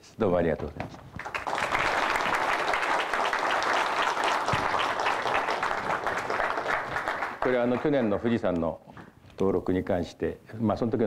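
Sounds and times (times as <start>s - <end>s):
audience applauding: 1.2s - 8.5s.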